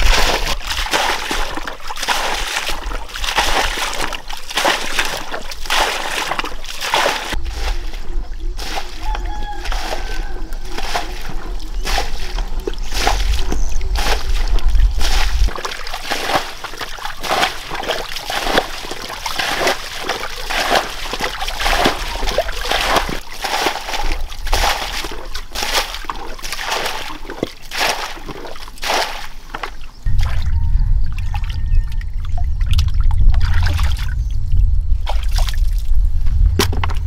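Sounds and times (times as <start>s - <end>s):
water splashing and sloshing in bucket: 0.0s - 34.2s, 35.0s - 36.0s.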